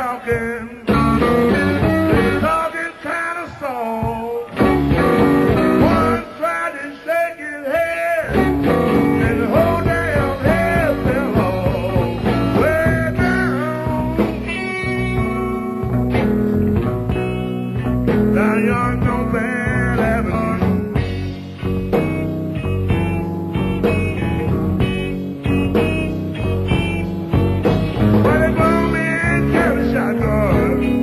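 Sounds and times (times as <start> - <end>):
bass guitar: 0.0 - 2.8, 3.5 - 6.4, 8.0 - 31.0
drums: 0.0 - 31.0
lead guitar bending notes: 4.5 - 6.2, 8.3 - 19.4, 20.4 - 31.0.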